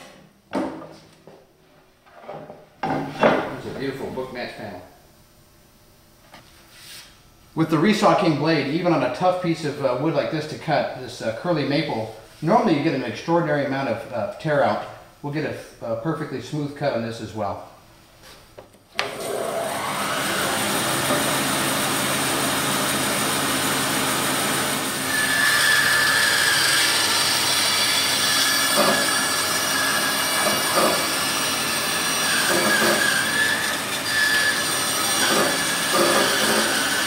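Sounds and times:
bandsaw running: 0:19.0 - 0:37.0
high whine of blade cutting wood: 0:19.0 - 0:37.0.

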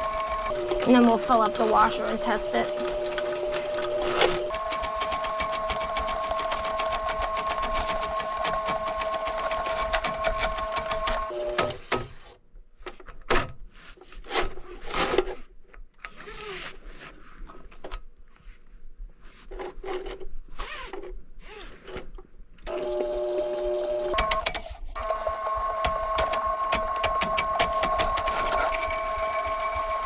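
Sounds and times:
drain snake motor: 0:00.0 - 0:11.3, 0:22.7 - 0:30.0.

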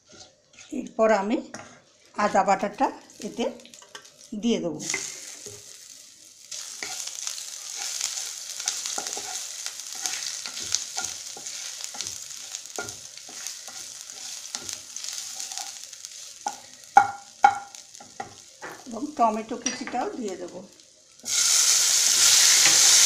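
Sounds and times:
spatula scraping a pan: 0:00.0 - 0:00.9, 0:06.6 - 0:18.4
spices sizzling in oil: 0:00.0 - 0:23.0.

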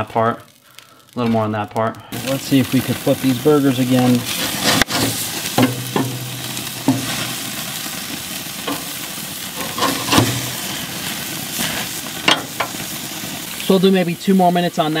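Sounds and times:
burger patties sizzling on grill: 0:00.0 - 0:15.0
metal spatula scraping grill grates: 0:03.8 - 0:12.9.

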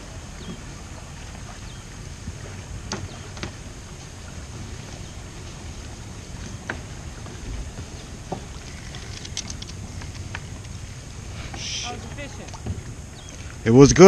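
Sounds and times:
wind rumble on microphone: 0:00.0 - 0:14.0
faint clicks: 0:08.3 - 0:10.8.

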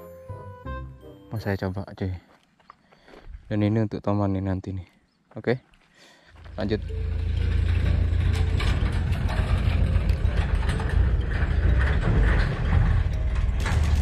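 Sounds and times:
low rumble: 0:06.4 - 0:14.0.

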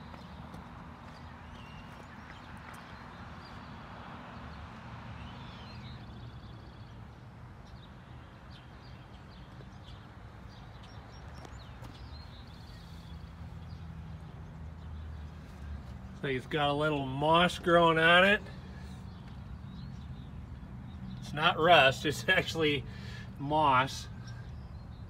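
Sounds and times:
footsteps crunching on gravel: 0:00.0 - 0:03.2
birds chirping: 0:00.0 - 0:25.0.

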